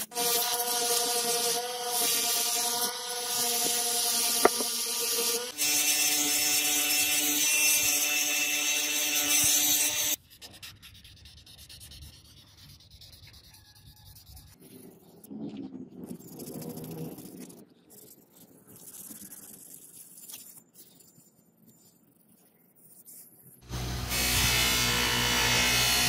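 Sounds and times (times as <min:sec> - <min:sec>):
rotary tool grinding steel: 0:00.0 - 0:10.2, 0:23.6 - 0:26.0.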